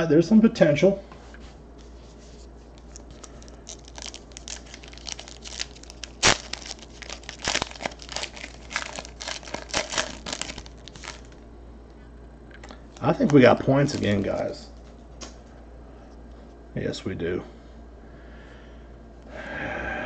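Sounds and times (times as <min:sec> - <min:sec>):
foil wrapper crinkling: 0:02.7 - 0:11.4, 0:12.6 - 0:14.6.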